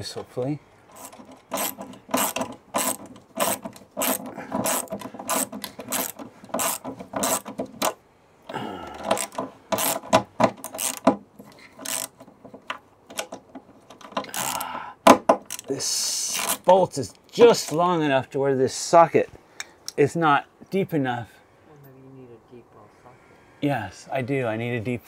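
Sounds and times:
ratchet wrench clicking: 0.9 - 7.5, 9.1 - 11.1, 11.8 - 12.1.

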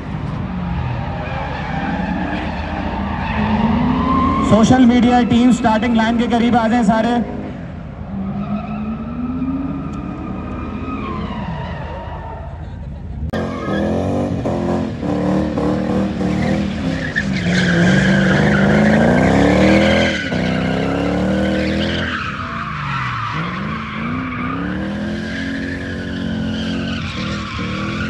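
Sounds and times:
car engine revving hard: 13.3 - 22.6.

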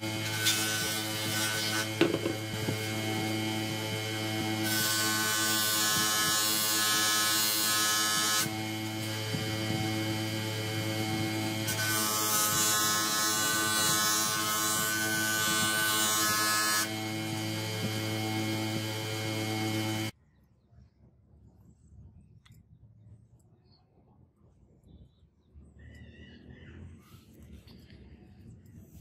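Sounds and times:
bench grinder humming: 0.0 - 20.1.

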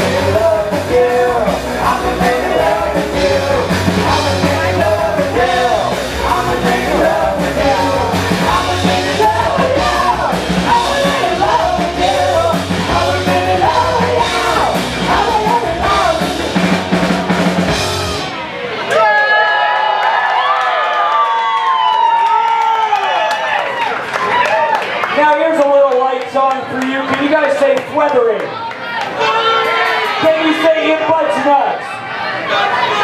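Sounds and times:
drum kit with cymbals: 0.0 - 18.4
electric bass: 0.0 - 18.6.

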